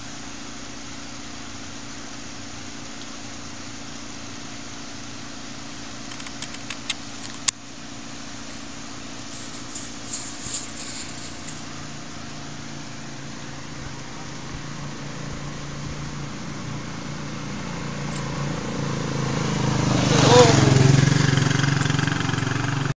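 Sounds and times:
engine humming: 0.0 - 22.9
sharp clicks: 6.1 - 7.6.

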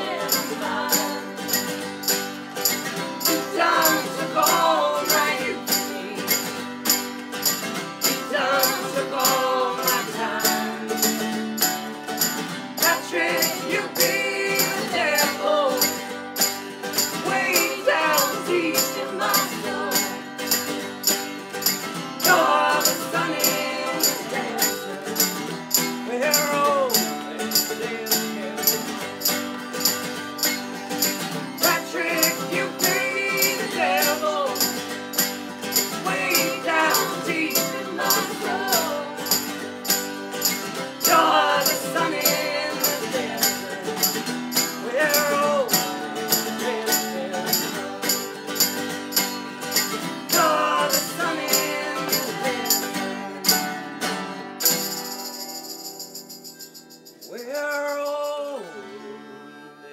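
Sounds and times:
voices singing in harmony: 0.0 - 1.8, 3.2 - 6.6, 8.0 - 11.2, 12.7 - 16.1, 17.0 - 20.6, 22.2 - 25.4, 26.0 - 29.2, 31.6 - 35.1, 35.7 - 48.2, 50.2 - 53.8
mandolin: 0.0 - 55.7
strummed acoustic guitar: 0.0 - 59.9
rattling percussion beat: 6.4 - 53.0.

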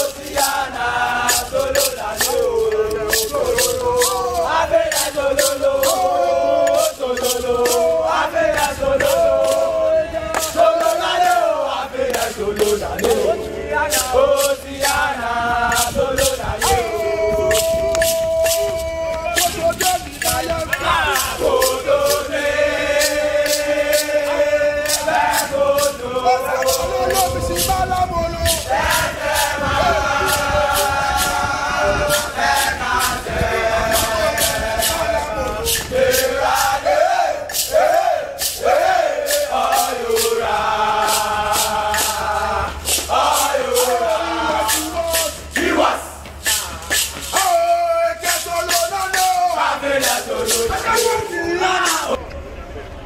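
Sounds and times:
gourd shaker rattling: 0.0 - 52.2
group of men chanting: 0.0 - 52.2
hands clapping: 10.3 - 11.4, 17.5 - 22.2, 44.6 - 45.4.

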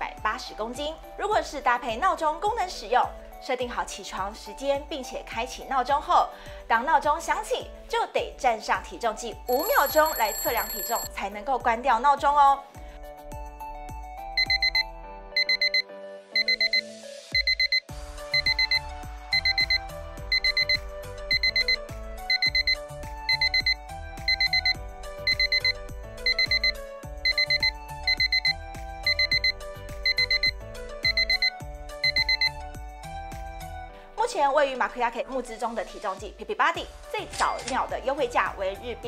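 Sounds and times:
background music: 0.0 - 39.0
digital alarm beeping: 9.5 - 11.1, 14.4 - 15.8, 16.4 - 16.8, 17.4 - 32.6.

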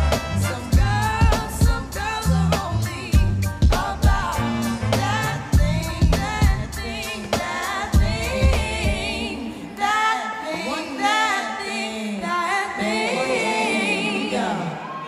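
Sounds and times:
heavy bass drum beat: 0.0 - 9.2
person singing with vibrato: 0.0 - 15.0.

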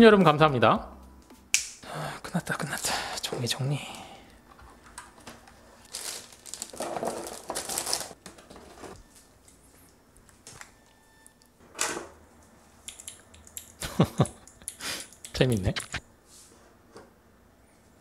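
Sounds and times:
rustling and crinkling: 4.6 - 10.7.

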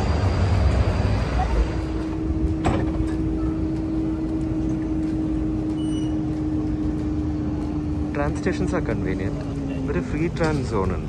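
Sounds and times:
low rumble: 0.0 - 11.0
tram electrical hum: 0.0 - 11.0.

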